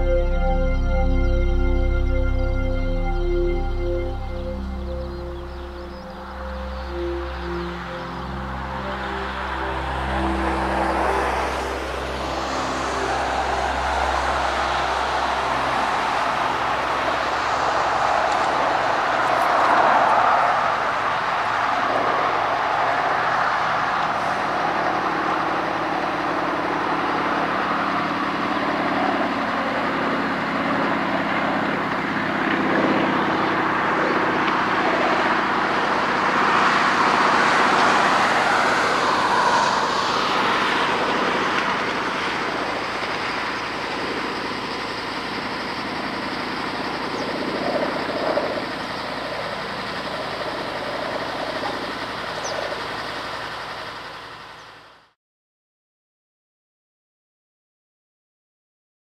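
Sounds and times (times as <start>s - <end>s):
aircraft radial engine flying past: 0.0s - 55.2s.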